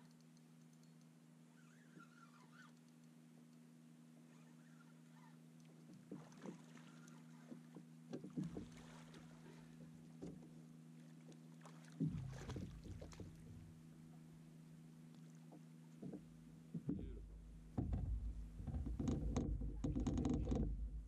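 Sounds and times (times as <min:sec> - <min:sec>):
steady low hum: 0:00.0 - 0:21.0
light knocks and clicks: 0:05.6 - 0:08.8, 0:10.2 - 0:10.6, 0:15.5 - 0:20.8.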